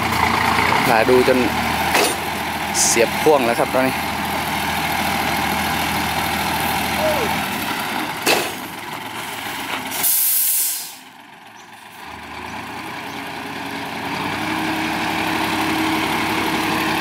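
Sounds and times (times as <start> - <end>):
diesel engine drone: 0.0 - 17.0
compressed air hiss: 10.0 - 11.0.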